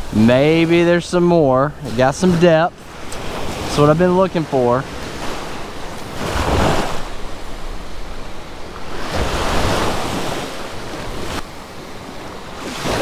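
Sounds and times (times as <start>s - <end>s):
small waves breaking on sand: 0.0s - 13.0s
wind buffeting microphone: 4.6s - 13.0s.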